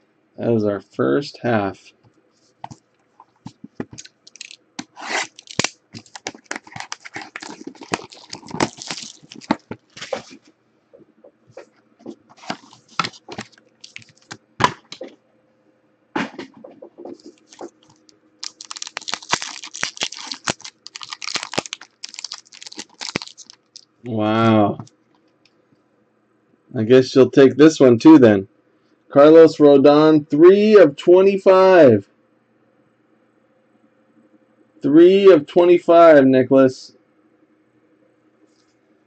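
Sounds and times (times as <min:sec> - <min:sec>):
foil pack crinkling: 0:03.4 - 0:10.5, 0:12.3 - 0:15.0, 0:17.3 - 0:23.9.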